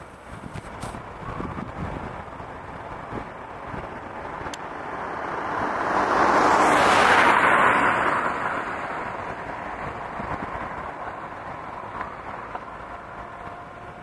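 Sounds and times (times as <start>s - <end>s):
vehicle passing by: 0.8s - 14.0s.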